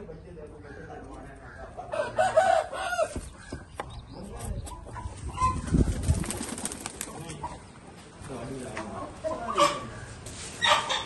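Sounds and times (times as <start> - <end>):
pigeon wing flaps: 5.7 - 7.3.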